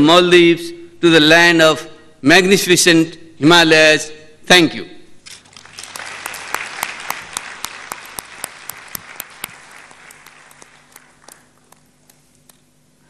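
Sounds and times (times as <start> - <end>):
audience applauding: 5.5 - 12.6
sharp claps of one person: 5.8 - 12.7.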